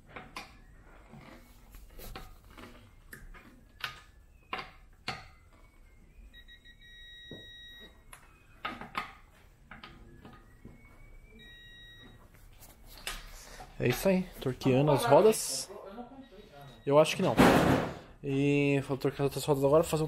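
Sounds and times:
electronic beep: 2.8s - 17.4s.

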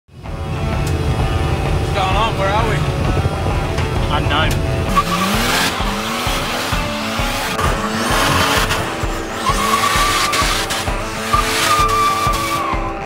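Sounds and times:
car engine revving: 0.1s - 13.0s
tyres screeching on tarmac: 4.9s - 13.0s
high steady squeal: 8.2s - 13.0s.

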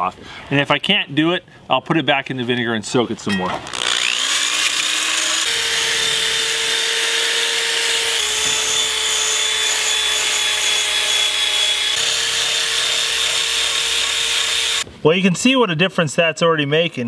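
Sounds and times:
drill motor whine: 3.7s - 14.8s
wire brush scouring rust: 3.8s - 14.8s.

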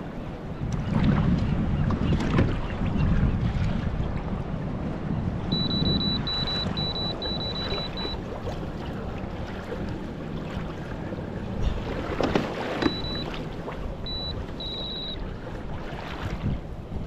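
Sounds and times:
water lapping against kayak: 0.0s - 17.0s
short high electronic beeps: 5.5s - 8.2s, 12.9s - 13.3s, 14.1s - 15.2s.

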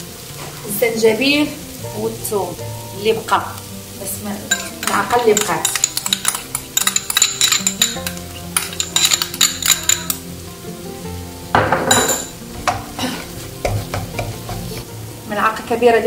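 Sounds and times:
food sizzling: 0.0s - 16.0s
spoon scraping frying pan: 4.4s - 10.3s, 12.1s - 14.9s.

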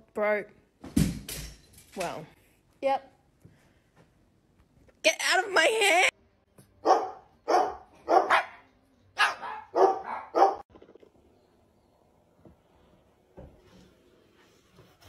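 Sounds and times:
dog barking: 6.8s - 10.6s.

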